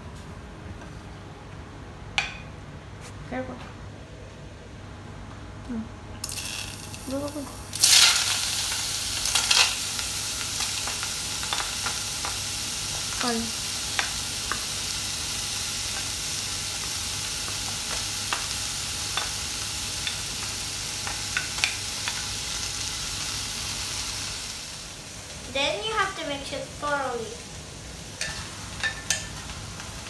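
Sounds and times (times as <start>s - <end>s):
fruit sizzling in a pot: 6.2s - 30.0s.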